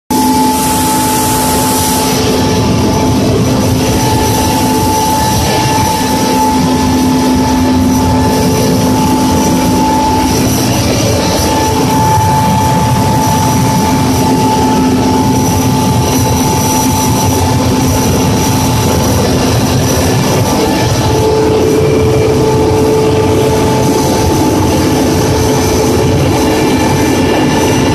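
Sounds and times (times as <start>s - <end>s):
helicopter engines and rotor rush: 0.1s - 27.9s
steady engine whines: 0.1s - 27.9s.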